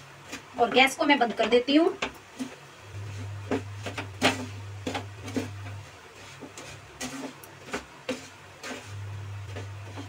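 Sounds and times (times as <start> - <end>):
low steady hum: 0.0 - 10.0
spoon scraping in a pan: 2.3 - 10.0.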